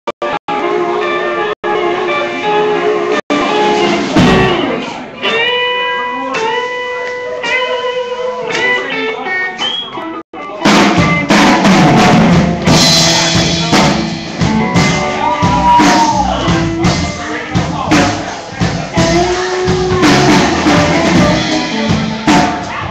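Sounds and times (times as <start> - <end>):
electric guitar notes: 0.2 - 17.2, 19.0 - 22.9
live band playing loud: 0.2 - 22.9.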